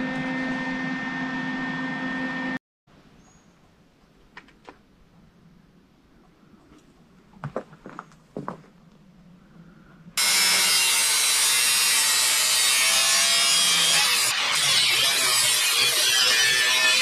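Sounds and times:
angle grinder cutting sheet metal: 10.2s - 17.0s.

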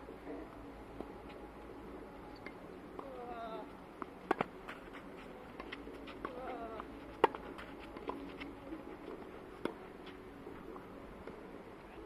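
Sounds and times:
tennis ball struck by racket: 4.0s - 4.9s, 7.1s - 8.5s.

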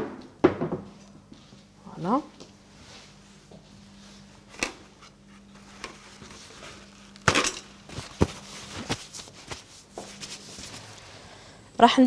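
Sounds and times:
kitchen items knocking on countertop: 0.0s - 0.9s
faint steady hum: 0.0s - 12.0s.

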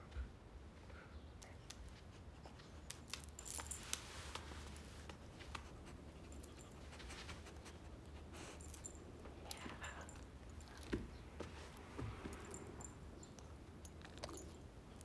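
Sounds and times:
low steady hum: 0.0s - 15.0s
metallic jingles and clicks: 2.8s - 4.8s, 6.2s - 7.2s, 8.0s - 10.9s, 12.3s - 15.0s.

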